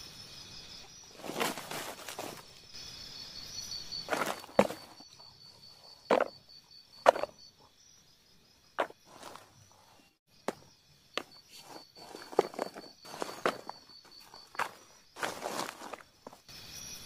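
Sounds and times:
insect trill: 0.0s - 17.0s.

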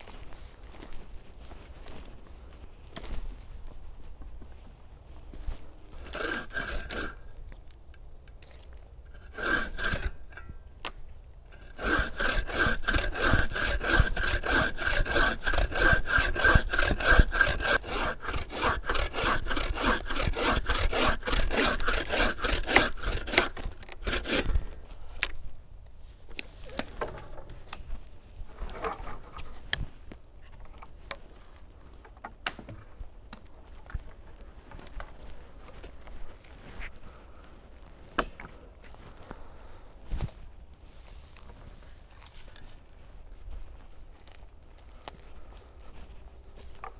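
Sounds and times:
hand saw cutting log: 6.0s - 7.2s, 9.1s - 10.4s, 11.5s - 24.6s
snaps and rustles in forest litter: 7.5s - 9.0s.

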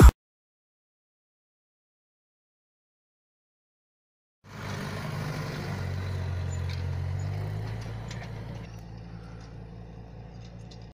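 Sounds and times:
tractor diesel engine droning: 4.4s - 10.9s.

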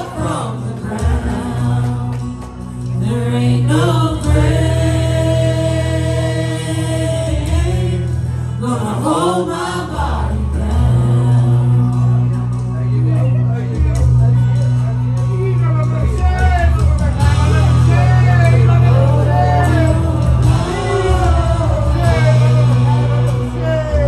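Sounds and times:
voices singing gospel: 0.0s - 12.6s, 17.1s - 24.0s
low bass accompaniment: 0.0s - 24.0s.

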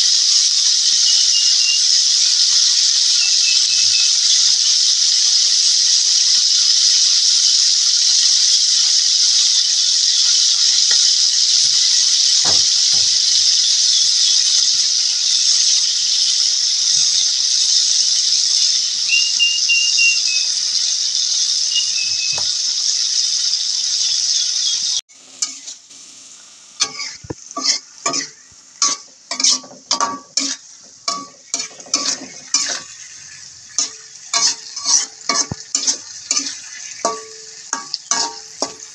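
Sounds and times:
fish sizzling in hot oil: 0.0s - 38.9s
spatula scraping a wok: 25.1s - 25.9s, 26.8s - 38.9s
metal ladle clinking on pan: 27.6s - 32.9s, 33.8s - 38.9s.

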